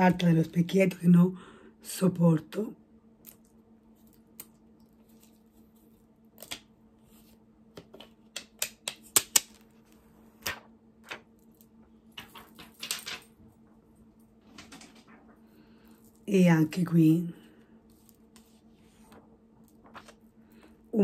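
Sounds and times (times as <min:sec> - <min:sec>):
paper and cardboard crackling: 0:17.9 - 0:20.3.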